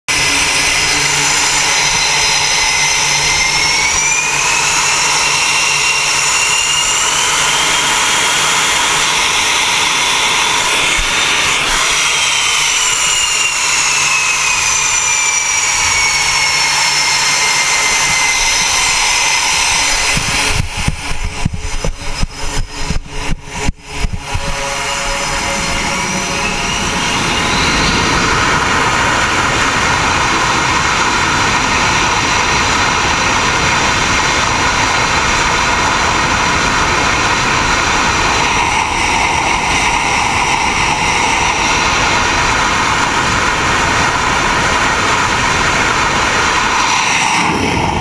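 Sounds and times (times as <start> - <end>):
jet turbine engine whine: 0.0 - 48.0
wind gusts on microphone: 17.0 - 48.0.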